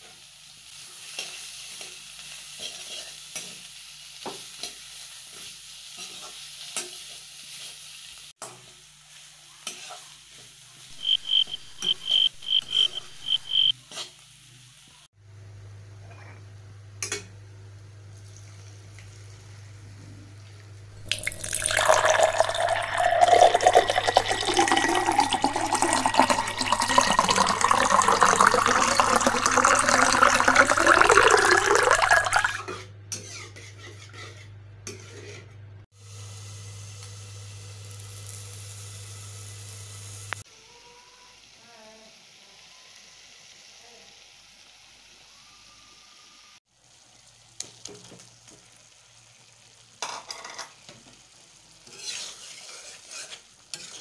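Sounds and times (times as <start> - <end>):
water hissing and bubbling in pan: 0.0 - 15.1, 18.1 - 33.9, 35.9 - 54.0
onions frying: 0.0 - 15.8, 16.6 - 34.4, 35.9 - 54.0
metal spatula scraping a pan: 2.6 - 3.6, 32.7 - 35.6, 51.8 - 54.0.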